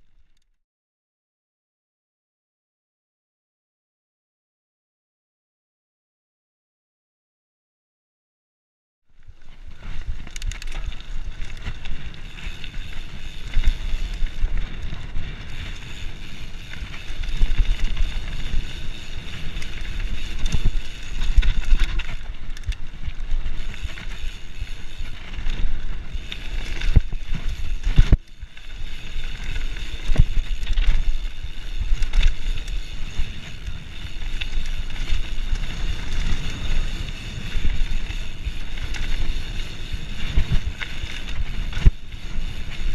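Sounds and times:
bike rattling over bumps: 9.2s - 42.9s.

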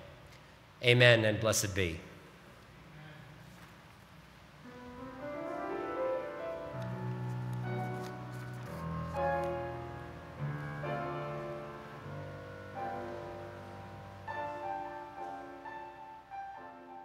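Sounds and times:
slow piano chords: 4.6s - 17.0s.

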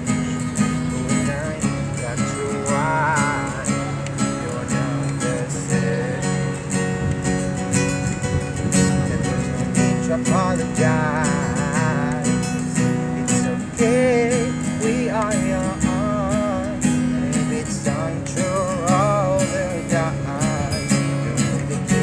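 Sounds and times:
acoustic guitar strumming: 0.0s - 22.0s
man singing: 0.6s - 7.1s, 8.6s - 22.0s.

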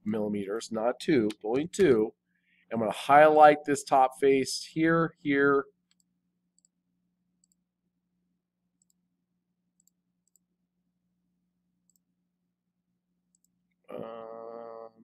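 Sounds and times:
computer mouse clicks: 5.9s - 6.8s, 7.4s - 7.6s, 9.8s - 10.5s, 13.3s - 13.6s.

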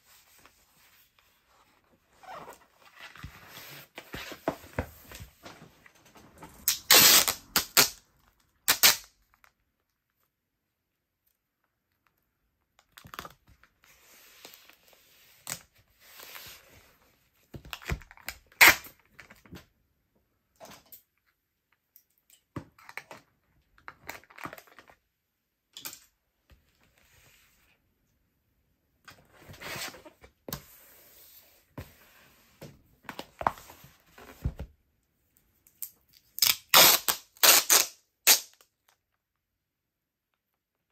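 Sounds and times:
packing tape pulled off roll: 6.7s - 8.0s, 8.7s - 9.2s, 18.5s - 19.0s, 36.4s - 38.7s.

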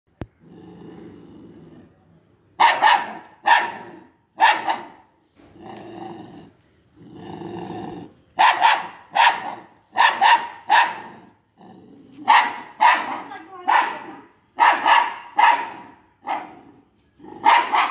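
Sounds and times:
low dog growls: 0.3s - 2.3s, 5.5s - 8.3s, 11.0s - 12.2s
puppy barking: 2.6s - 5.0s, 8.4s - 11.1s, 12.2s - 16.6s, 17.4s - 17.9s.

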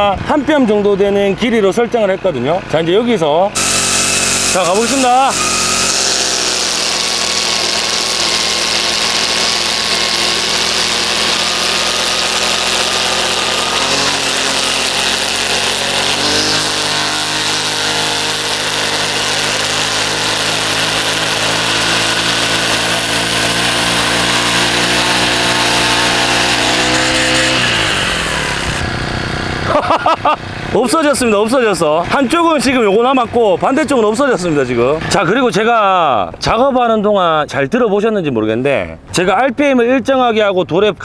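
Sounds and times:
brush cutter engine under load: 1.6s - 35.4s
trimmer line striking stone: 3.6s - 29.0s.

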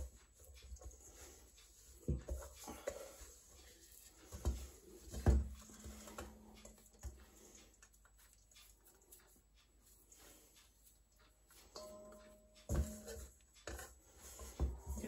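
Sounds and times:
hands kneading dough in bowl: 0.0s - 15.0s.

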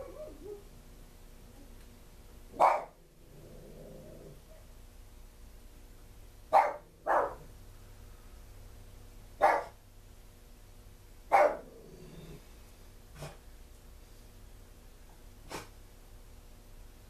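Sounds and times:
dog barking: 2.5s - 3.0s, 6.5s - 7.5s, 9.4s - 9.8s, 11.3s - 11.7s.

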